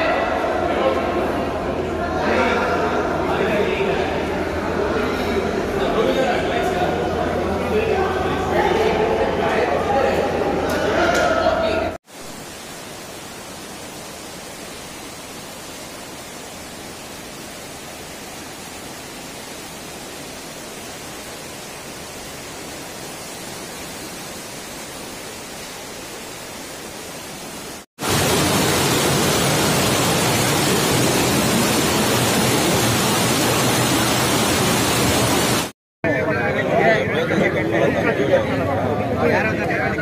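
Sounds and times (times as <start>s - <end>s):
floodwater rushing and churning: 12.1s - 35.7s.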